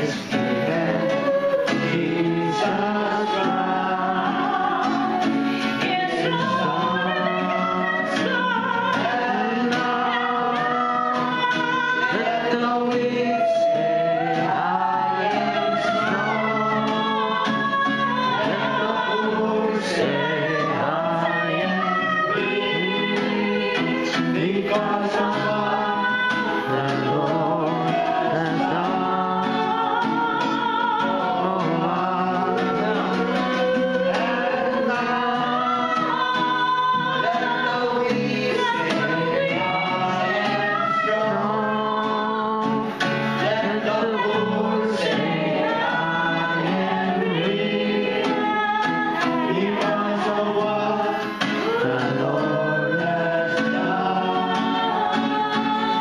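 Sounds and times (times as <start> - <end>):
strummed acoustic guitar: 0.0 - 56.0
woman singing gospel song: 0.0 - 56.0.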